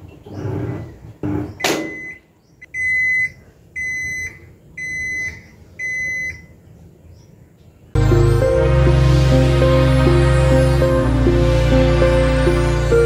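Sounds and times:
short rising electronic sweep: 8.0s - 13.0s.

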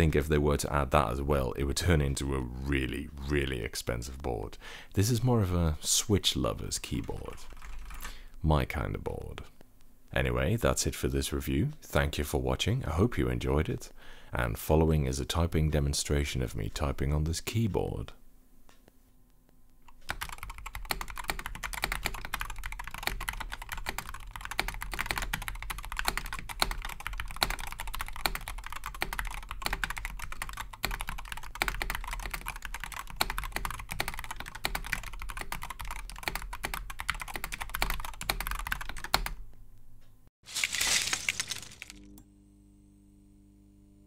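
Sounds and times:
keyboard typing: 7.2s - 8.2s, 19.9s - 39.4s.

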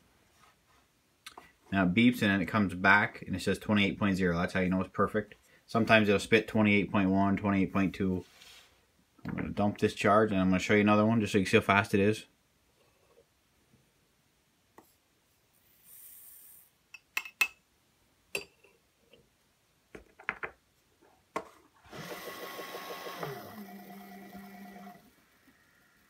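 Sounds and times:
powder dispenser motor running: 21.9s - 25.2s.

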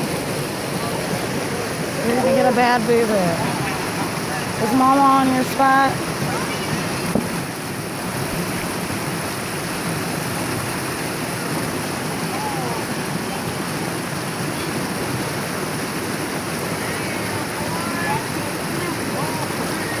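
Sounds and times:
river water rushing over rocks: 0.0s - 20.0s
faint voices: 0.5s - 7.4s, 12.1s - 13.9s, 16.6s - 20.0s.

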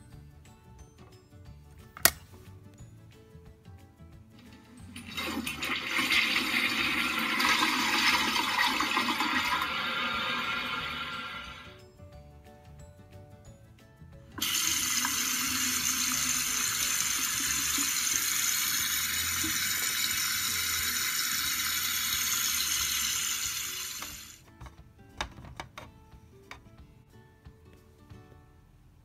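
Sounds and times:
quiet background music: 0.0s - 29.0s
tap water running into sink: 4.9s - 11.6s, 14.4s - 24.4s.

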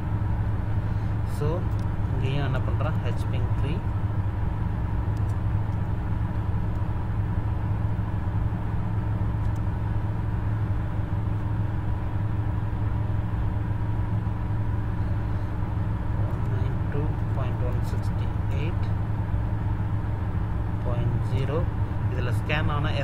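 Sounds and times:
low droning hum: 0.0s - 23.0s.

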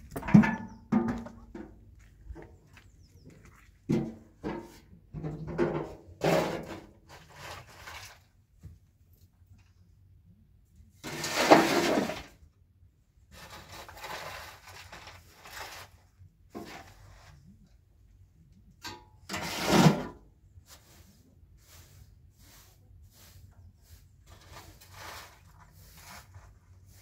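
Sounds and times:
hand broom sweeping dust: 19.4s - 27.0s.

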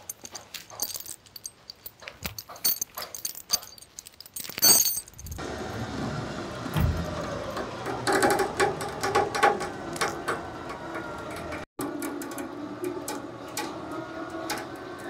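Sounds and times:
lifting chains clinking and rattling: 0.0s - 5.4s
winch motor running: 5.3s - 15.0s.

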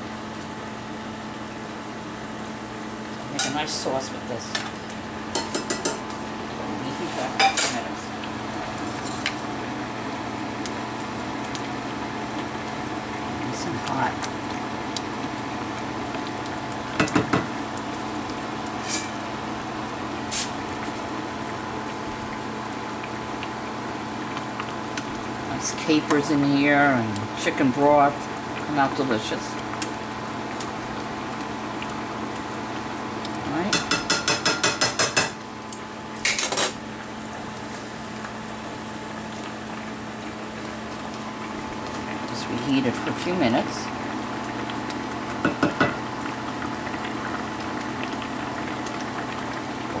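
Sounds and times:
utensil clacking against pan: 5.3s - 6.0s, 33.7s - 35.4s
sauce simmering and bubbling: 8.0s - 36.1s, 36.8s - 50.0s.

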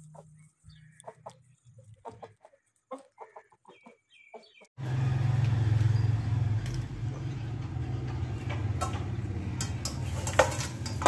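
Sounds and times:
chickens clucking: 0.0s - 4.7s.

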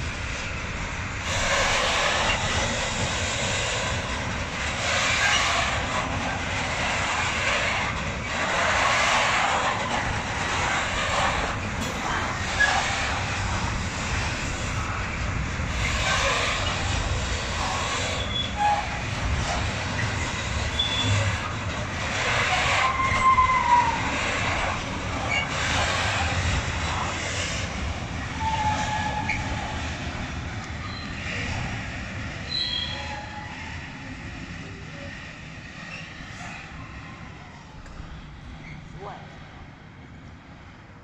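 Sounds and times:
train wheels rumbling on rail: 0.0s - 41.0s
high wheel squeals: 1.3s - 2.7s, 4.8s - 6.1s, 12.4s - 13.2s, 15.8s - 19.1s, 19.9s - 21.4s, 22.2s - 26.4s, 28.2s - 29.8s, 30.8s - 31.3s, 32.4s - 34.0s.

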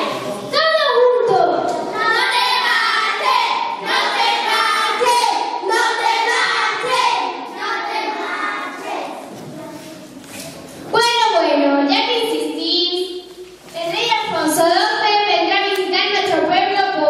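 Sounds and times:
high voices singing: 1.9s - 10.1s.

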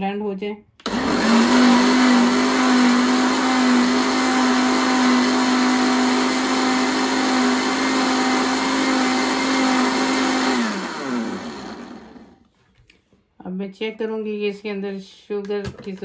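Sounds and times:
blender running: 0.8s - 12.4s.

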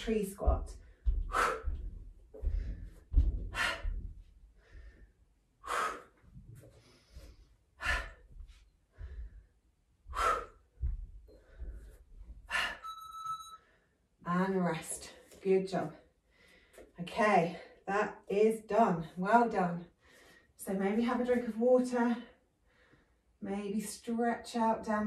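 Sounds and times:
dull low thumps: 0.0s - 5.0s, 8.2s - 12.5s
woman breathing hard: 0.8s - 12.9s.

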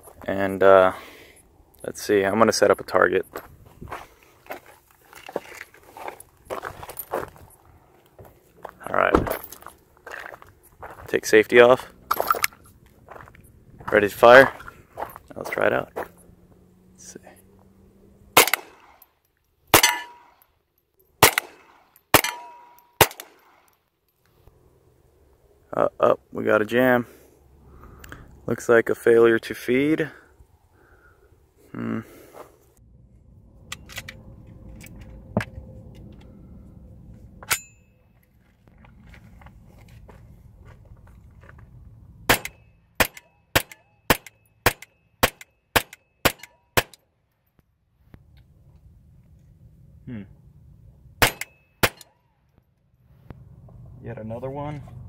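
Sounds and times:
pistol shots with ringing tail: 18.4s - 19.0s, 19.7s - 20.4s, 21.2s - 23.7s, 42.3s - 47.0s, 51.2s - 52.2s.

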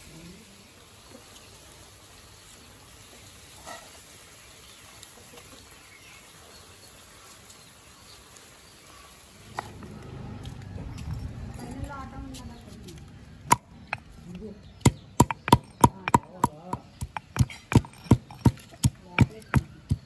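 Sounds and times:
birds: 3.7s - 11.4s, 12.2s - 20.0s
low rumble: 9.4s - 14.8s.

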